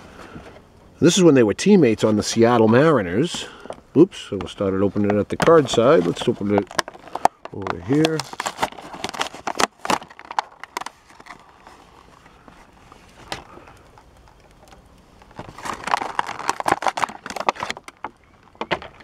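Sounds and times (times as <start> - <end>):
plastic blister pack crinkling: 1.0 - 19.0.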